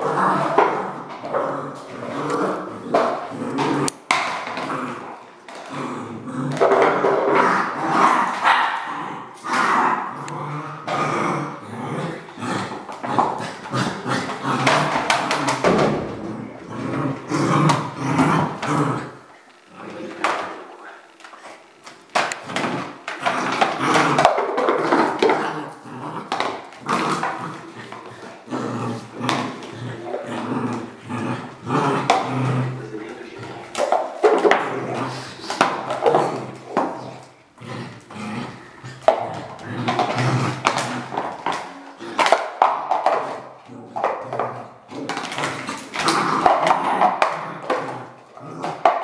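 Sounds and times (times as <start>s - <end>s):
plastic bowl scraping on tile: 0.0s - 8.6s, 9.4s - 20.6s, 21.7s - 49.0s
puppy barking and growling: 6.5s - 19.2s.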